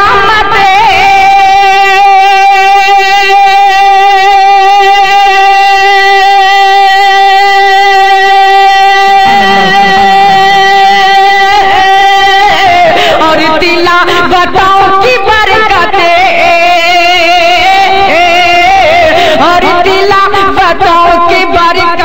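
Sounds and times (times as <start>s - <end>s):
person singing a long note: 5.2s - 12.9s.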